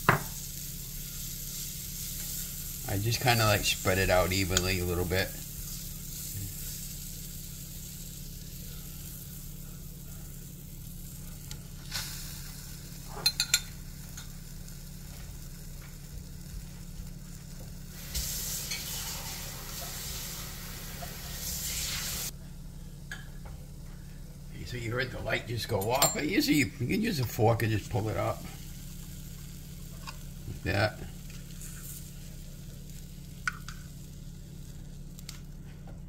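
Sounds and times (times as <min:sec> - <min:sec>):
batter sizzling in waffle maker: 0:00.0 - 0:35.9.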